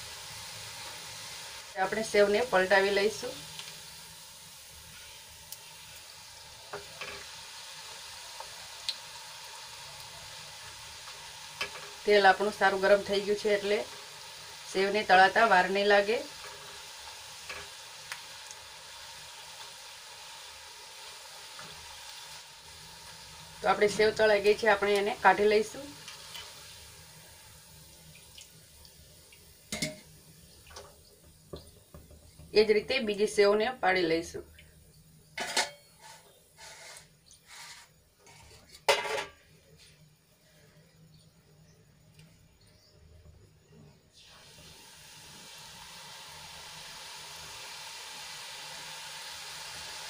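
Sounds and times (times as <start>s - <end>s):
dough deep-frying in hot oil: 0.0s - 50.0s
oil dripping into a pan: 27.8s - 32.4s.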